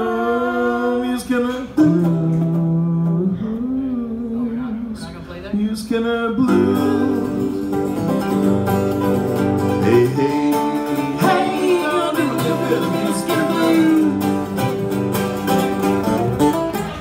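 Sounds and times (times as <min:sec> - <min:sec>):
mandolin and acoustic guitar: 0:00.0 - 0:05.2, 0:05.8 - 0:17.0
man singing: 0:00.0 - 0:08.0, 0:09.7 - 0:14.7.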